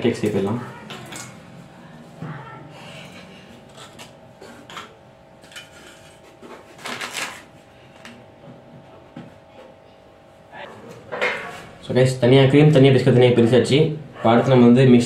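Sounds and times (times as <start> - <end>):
knife scraping biscuits: 3.7 - 7.4.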